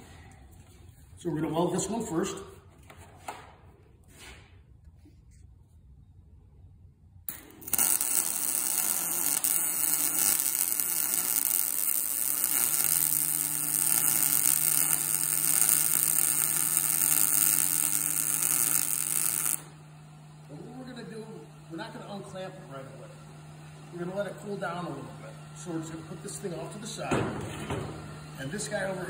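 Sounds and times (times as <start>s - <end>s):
welding arc crackling sizzle: 7.3s - 27.1s.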